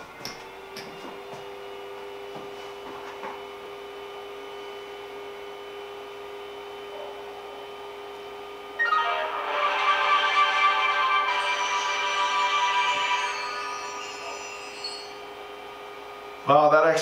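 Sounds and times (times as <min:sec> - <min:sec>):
loud music: 0:08.8 - 0:15.2.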